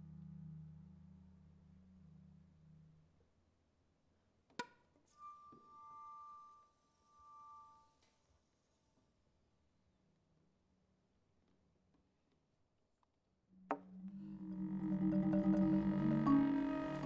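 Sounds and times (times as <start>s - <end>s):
very high ringing tone: 5.1s - 9.0s
low held drone: 13.9s - 17.0s
steady held tones: 13.9s - 17.0s.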